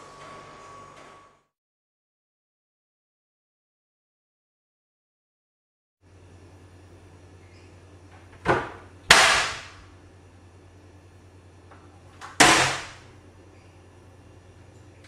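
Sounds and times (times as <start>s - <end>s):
cupboard door knocking and banging: 8.4s - 9.6s.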